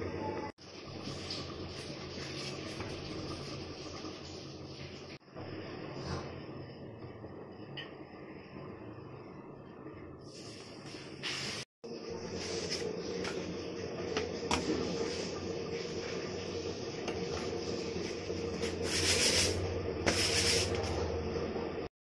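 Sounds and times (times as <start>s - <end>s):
steady hum: 0.0s - 11.2s, 11.8s - 21.9s.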